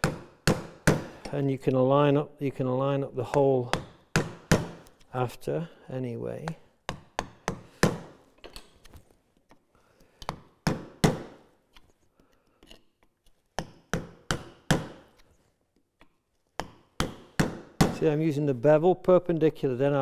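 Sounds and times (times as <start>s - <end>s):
mallet striking chisel in wood: 0.0s - 1.3s, 3.2s - 4.9s, 6.4s - 8.2s, 13.6s - 15.2s, 16.0s - 18.0s.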